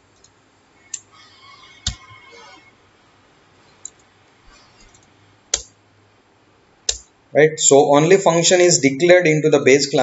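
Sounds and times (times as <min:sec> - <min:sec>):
computer keys clicking: 0:03.8 - 0:04.1, 0:04.7 - 0:05.8, 0:06.9 - 0:07.1.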